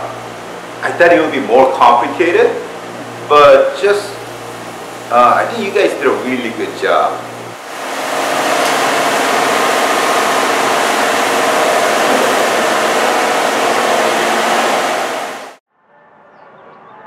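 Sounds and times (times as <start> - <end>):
car wash spray hissing: 4.6 - 15.6.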